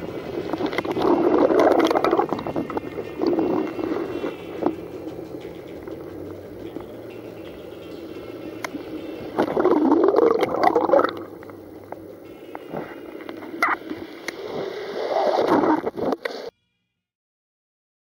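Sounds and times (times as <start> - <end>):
water sloshing and splashing: 0.0 - 14.7
drip-like ticks: 1.8 - 9.5, 10.4 - 14.4.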